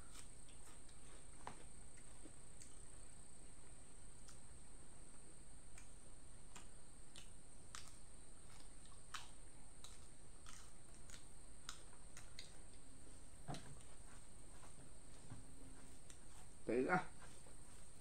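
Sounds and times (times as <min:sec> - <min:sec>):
person chewing food: 0:00.0 - 0:03.1, 0:05.7 - 0:16.5.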